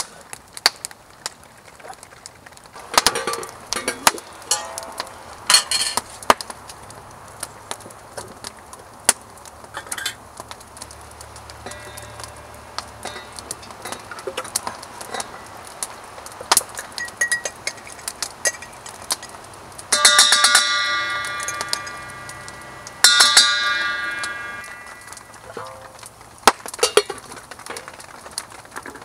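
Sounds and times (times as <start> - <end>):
metal spoon striking steel pot: 3.2 - 5.0, 11.6 - 12.3, 19.9 - 25.9.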